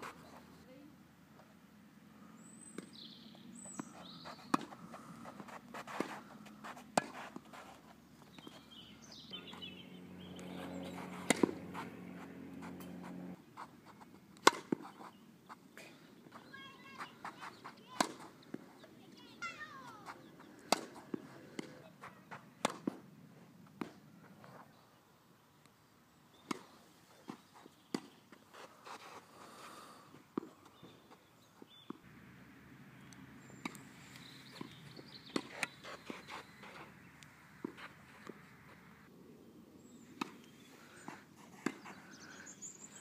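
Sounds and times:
bird chirping: 2.3s - 4.6s, 8.2s - 11.3s, 33.0s - 37.5s, 39.8s - 43.0s
tennis ball bouncing: 3.8s - 7.5s, 10.4s - 13.4s, 14.4s - 14.9s, 17.0s - 18.6s, 19.4s - 23.1s, 34.6s - 36.1s, 41.6s - 42.0s
tennis racket hitting ball: 3.8s - 7.5s, 10.5s - 13.4s, 14.4s - 14.9s, 17.3s - 18.3s, 20.7s - 21.7s.

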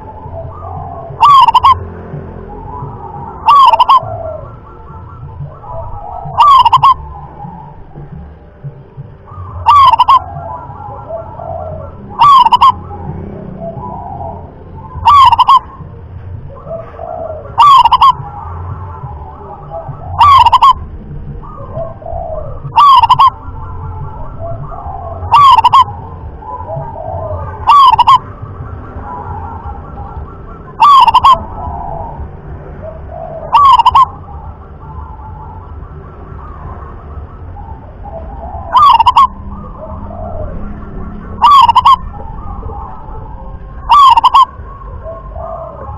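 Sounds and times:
dove soft cooing: 0.0s - 15.9s, 16.5s - 45.9s
dove loud short calls: 0.9s - 1.8s, 5.1s - 7.0s, 9.6s - 10.8s, 11.8s - 12.8s, 15.0s - 15.8s, 16.8s - 18.3s, 19.9s - 20.8s, 22.6s - 23.4s, 25.2s - 25.9s, 26.7s - 28.2s, 30.8s - 31.5s, 33.4s - 34.2s, 38.7s - 39.4s, 41.4s - 42.1s, 43.9s - 44.6s.

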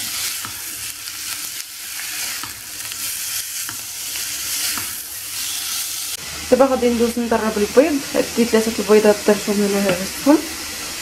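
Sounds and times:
spatula scraping and tapping pan: 0.0s - 5.7s
food sizzling in a frying pan: 0.0s - 11.0s.

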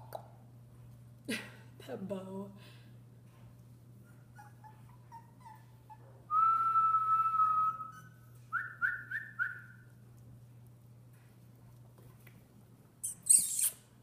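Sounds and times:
person whistling: 6.3s - 9.7s.

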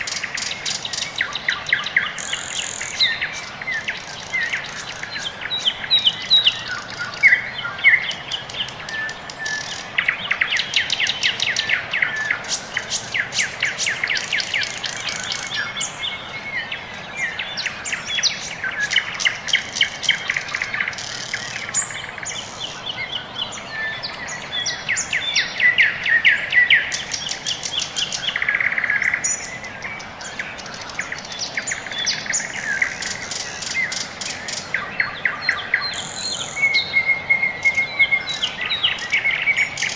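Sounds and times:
small birds chirping: 0.0s - 39.9s.

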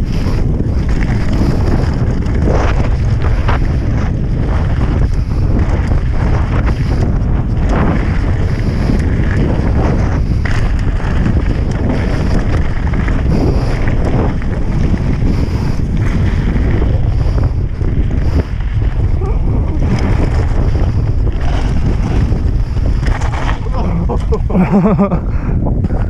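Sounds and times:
bike rattling over gravel: 0.0s - 26.0s
wind buffeting camera: 0.0s - 26.0s.

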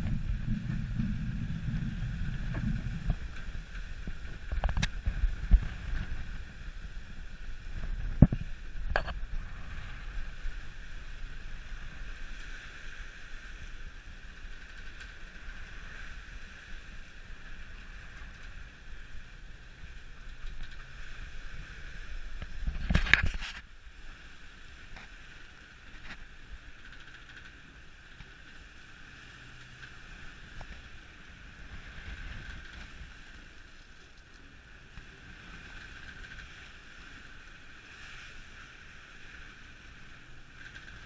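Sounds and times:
wind buffeting microphone: 0.0s - 12.4s
rush of wind and water: 0.0s - 41.0s.

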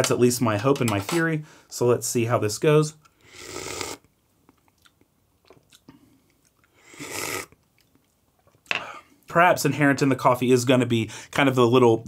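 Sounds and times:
slurping espresso: 6.9s - 7.5s.

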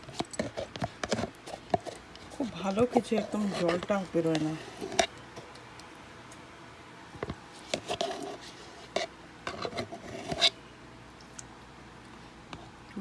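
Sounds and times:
spatula scraping plastic tub: 0.0s - 5.1s, 7.7s - 10.6s.

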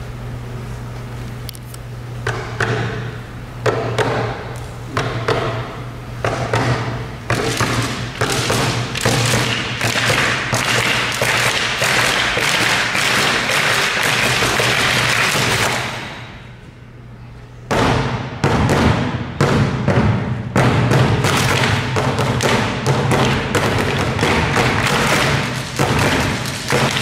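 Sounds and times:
continuous noisy wash: 0.0s - 27.0s
steady low hum: 0.0s - 27.0s
percussive thuds and taps: 6.2s - 16.0s, 17.7s - 27.0s.

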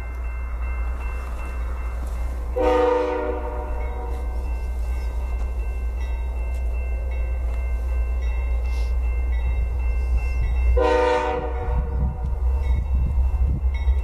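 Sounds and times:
locomotive air horn: 2.6s - 4.3s, 10.8s - 11.9s.

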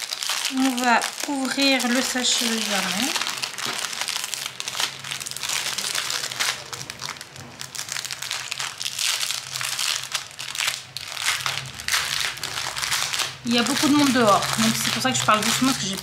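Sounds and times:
plastic packaging crinkling: 0.0s - 16.0s.

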